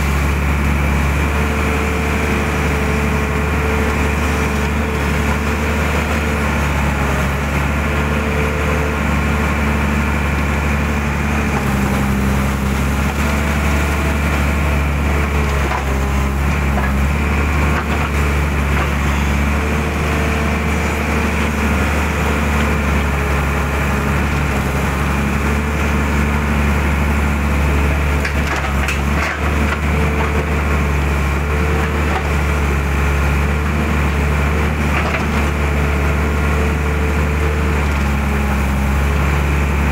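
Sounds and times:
excavator diesel engine running: 0.0 - 39.9.

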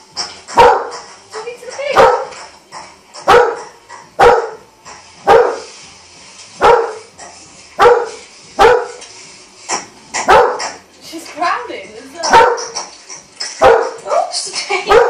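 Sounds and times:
dog barking: 0.6 - 1.0, 2.0 - 2.4, 3.2 - 4.6, 5.3 - 5.7, 6.6 - 7.1, 7.8 - 9.0, 10.3 - 10.8, 12.2 - 12.7, 13.6 - 14.3.

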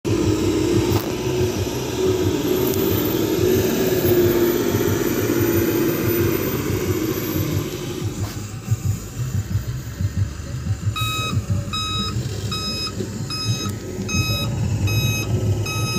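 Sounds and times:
steady engine whine: 0.0 - 15.9
truck diesel engine rumbling: 0.0 - 15.9.

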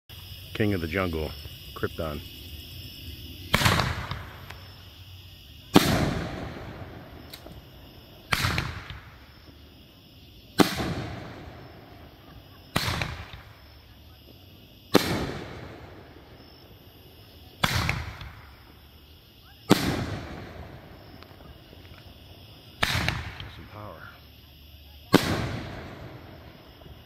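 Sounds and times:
firework bangs with echo: 3.5 - 4.8, 5.6 - 7.6, 8.2 - 9.4, 10.5 - 13.7, 14.9 - 16.5, 17.5 - 18.8, 19.6 - 21.5, 22.8 - 23.6, 25.1 - 27.0.

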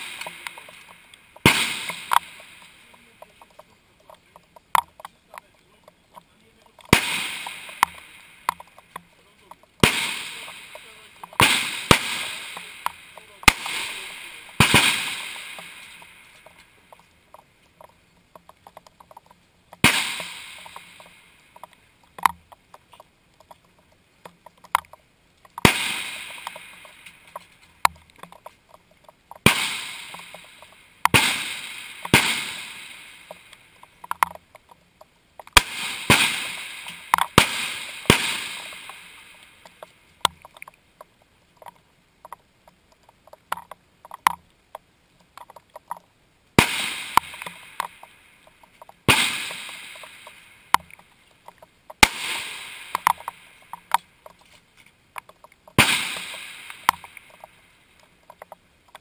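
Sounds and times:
rifle shots: 0.0 - 3.2, 6.8 - 8.9, 9.8 - 16.6, 19.8 - 21.2, 25.6 - 27.4, 29.4 - 33.5, 35.5 - 39.4, 46.6 - 48.1, 49.0 - 50.5, 52.0 - 53.9, 55.8 - 57.4.

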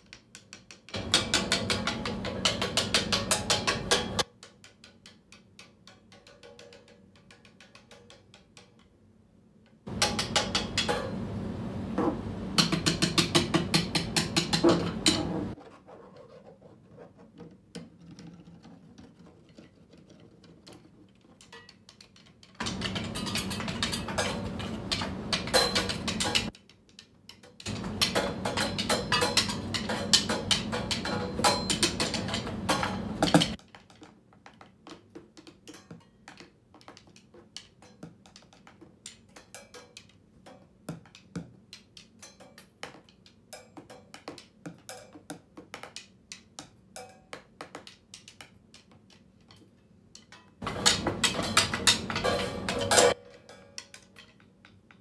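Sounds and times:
cymbal played with drumsticks: 0.9 - 4.3, 27.6 - 33.6.

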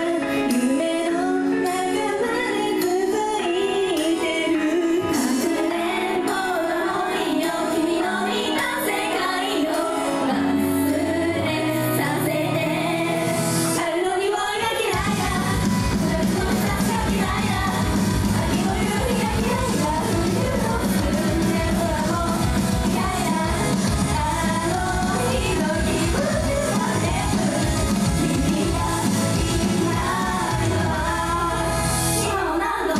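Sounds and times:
women singing over pop music: 0.0 - 32.9.

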